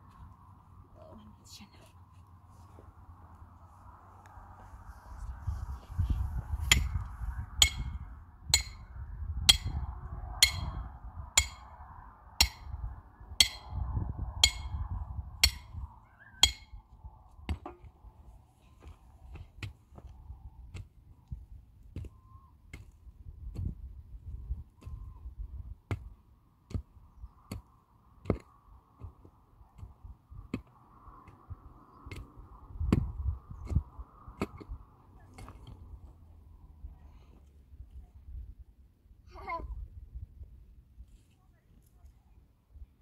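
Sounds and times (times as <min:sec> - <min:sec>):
ringing hammer blows: 0:07.6 - 0:08.0, 0:09.5 - 0:11.8, 0:13.4 - 0:16.8.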